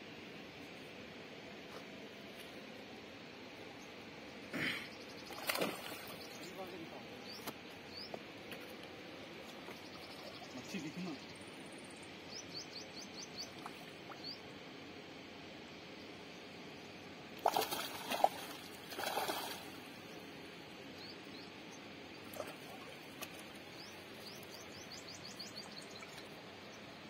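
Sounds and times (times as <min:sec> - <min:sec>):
small birds chirping: 0:03.7 - 0:14.8, 0:15.8 - 0:27.0
fish thrashing and splashing: 0:05.3 - 0:06.2, 0:17.4 - 0:19.8.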